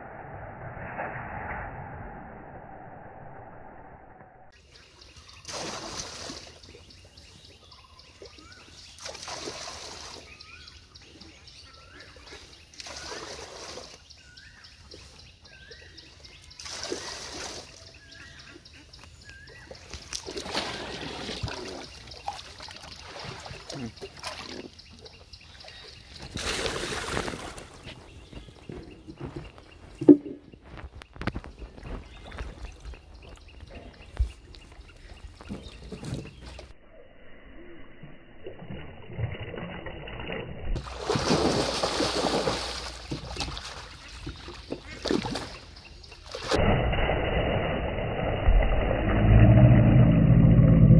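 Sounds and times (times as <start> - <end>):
water splashing and trickling: 4.7 - 36.7, 38.4 - 49.4.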